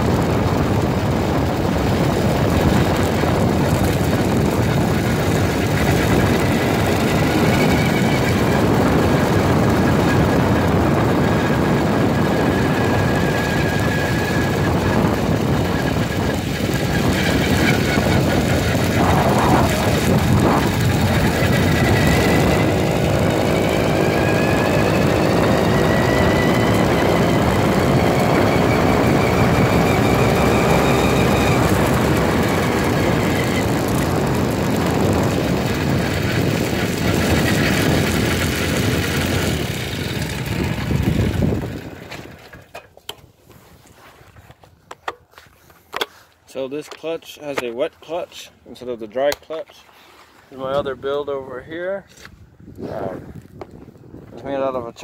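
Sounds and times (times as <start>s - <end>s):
small engine whining: 0.0s - 42.9s
wind noise: 0.0s - 44.4s, 50.5s - 55.0s
road noise: 0.0s - 48.7s.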